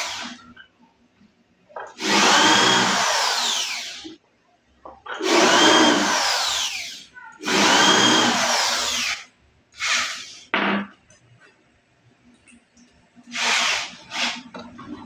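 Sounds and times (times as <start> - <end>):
electric drill running: 2.0 - 4.1, 5.2 - 9.2.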